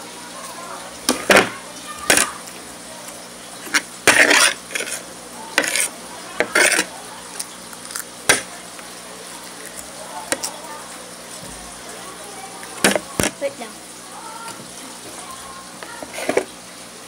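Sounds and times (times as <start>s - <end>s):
metal spoon scraping ceramic plate: 5.6s - 6.9s.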